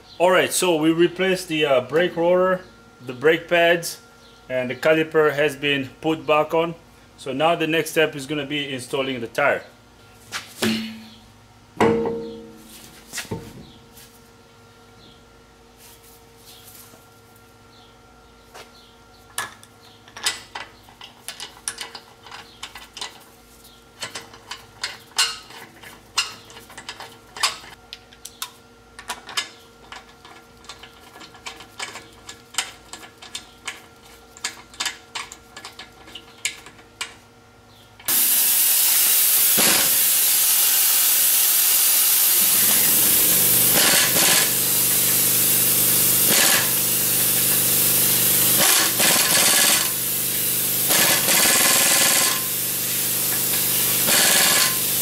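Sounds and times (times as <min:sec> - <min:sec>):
air impact wrench hammering: 0:10.6 - 0:11.2, 0:11.8 - 0:12.6, 0:38.1 - 0:55.0.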